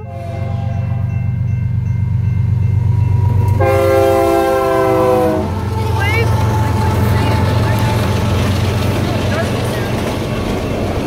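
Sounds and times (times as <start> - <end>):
locomotive horn blast: 0.0 - 1.2, 3.2 - 8.0.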